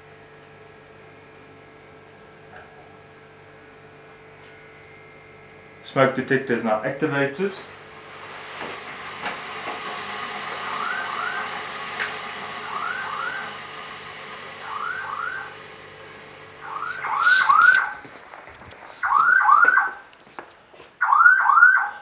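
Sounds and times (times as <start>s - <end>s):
alarm rising chirps: 10.6s - 11.5s, 12.6s - 13.6s, 14.6s - 15.6s, 16.6s - 18.0s, 19.0s - 20.1s, 21.0s - 22.0s.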